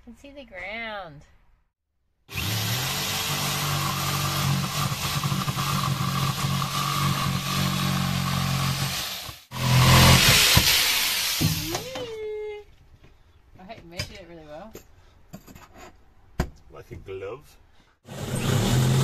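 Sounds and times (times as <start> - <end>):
jigsaw cutting wood: 2.3 - 11.6, 18.1 - 19.0.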